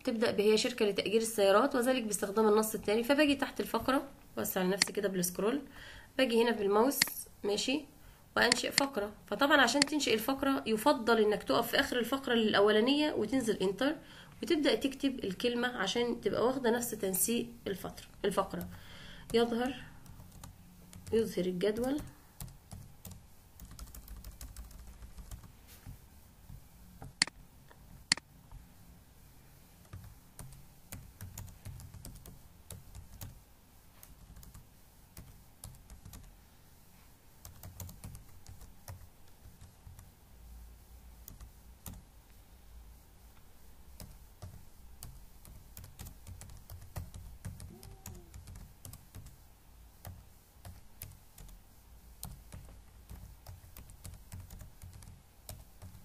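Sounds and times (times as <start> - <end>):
keyboard typing: 8.4 - 9.0, 18.0 - 25.5, 29.8 - 33.4, 34.0 - 36.3, 37.4 - 40.1, 41.2 - 42.1, 44.0 - 49.4, 50.0 - 51.6, 52.2 - 56.0.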